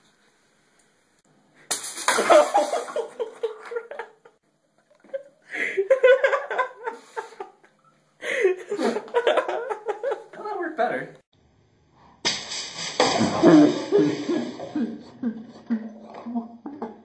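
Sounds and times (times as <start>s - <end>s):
sharp smack: 12.2s - 14.4s
people laughing and exclaiming: 13.3s - 17.0s.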